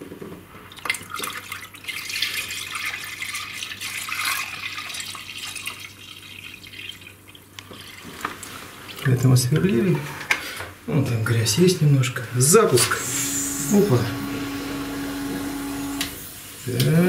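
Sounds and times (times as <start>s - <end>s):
water pouring into a bucket: 0.7s - 9.2s.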